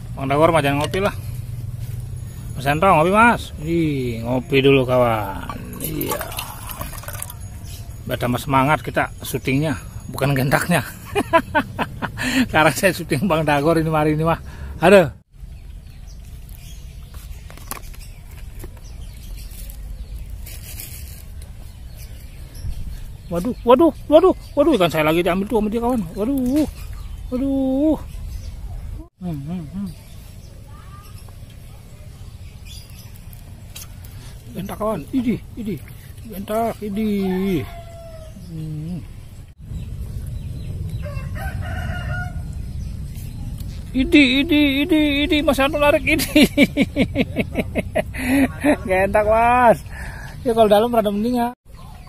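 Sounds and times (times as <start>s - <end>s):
low rumble: 0.0s - 8.0s, 39.0s - 46.1s
rooster crowing: 36.9s - 38.5s, 40.9s - 42.6s.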